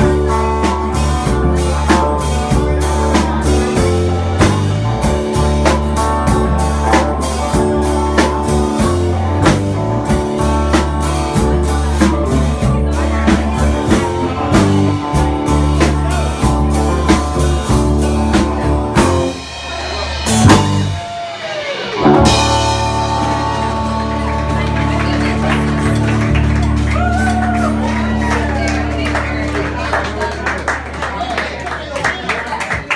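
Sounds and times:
blues-rock band playing: 0.0s - 31.2s
gliding guitar note: 21.6s - 27.4s.

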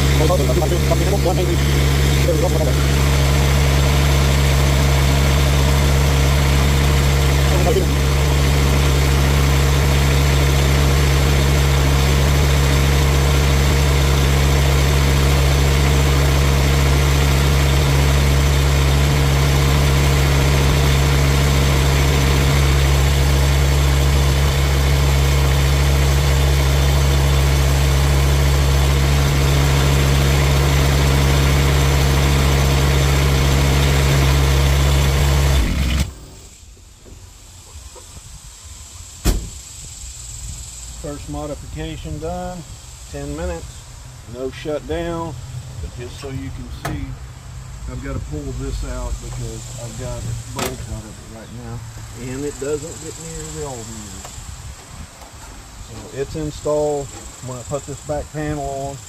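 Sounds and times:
excavator engine idling: 0.0s - 36.6s.

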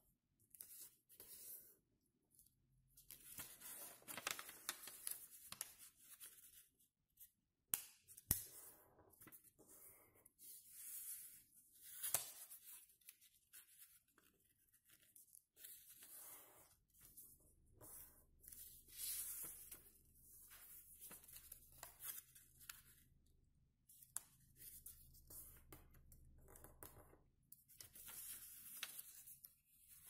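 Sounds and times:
paper rustling and crackling: 3.1s - 6.6s.

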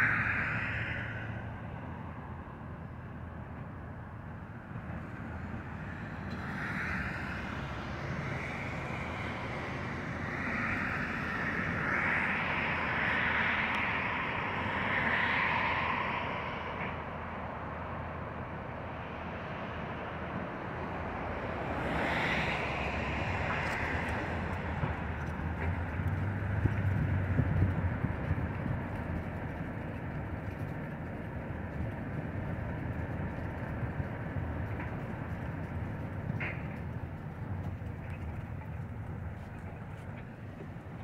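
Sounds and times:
road traffic passing: 0.0s - 41.0s.

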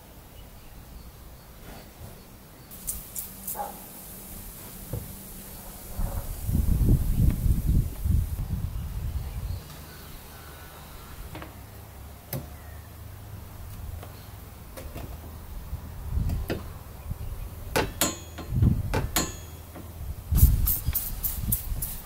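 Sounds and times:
trigger spray bottle squirts: 2.7s - 3.7s, 20.4s - 22.0s.

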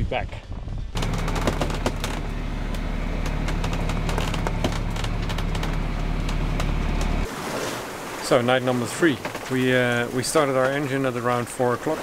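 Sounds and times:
diesel engine humming: 1.0s - 7.3s
sharp clicks and rattles: 1.0s - 7.3s.

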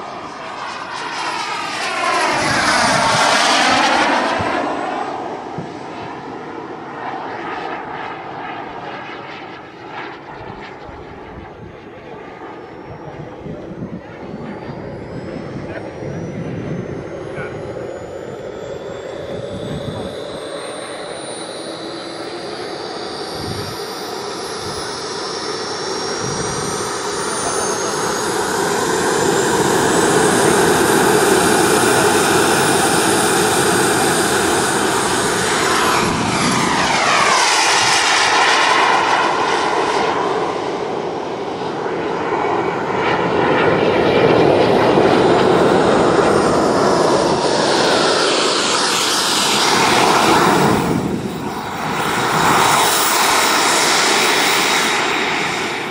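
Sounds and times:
jet engine whining: 0.0s - 55.9s
rushing air: 45.7s - 55.9s.

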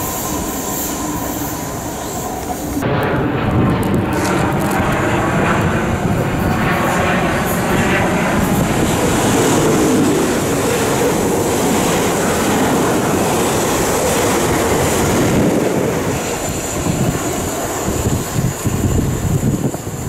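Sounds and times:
train wheels rumbling on rail: 0.0s - 20.0s
wind on microphone: 2.7s - 20.0s.

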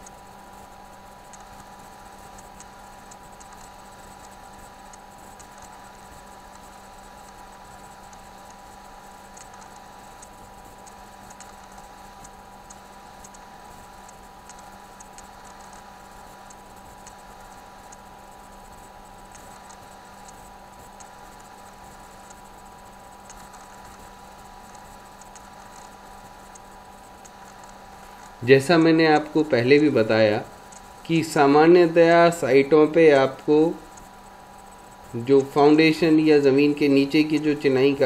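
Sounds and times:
faint ticks: 0.0s - 28.4s, 30.4s - 32.1s, 33.3s - 37.7s
thin whine: 0.0s - 38.0s
recording hiss: 27.3s - 38.0s.

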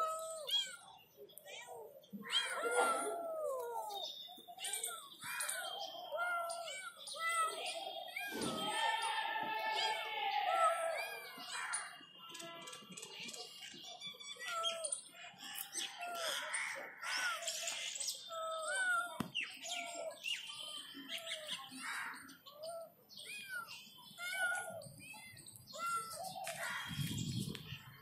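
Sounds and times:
kittens mewing: 0.0s - 4.0s, 4.6s - 11.4s, 22.6s - 26.9s
birds chirping: 0.0s - 28.0s.

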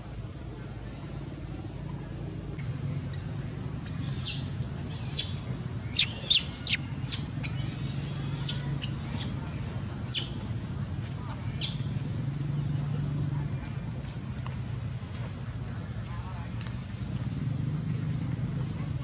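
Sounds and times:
steady low hum: 0.0s - 12.1s
monkey squealing: 3.9s - 9.2s.

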